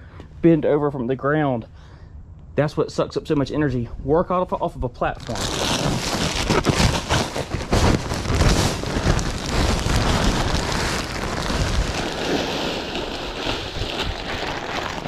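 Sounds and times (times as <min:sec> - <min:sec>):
plastic bag crinkling: 0:05.2 - 0:15.0
wood mulch pouring: 0:05.2 - 0:15.0.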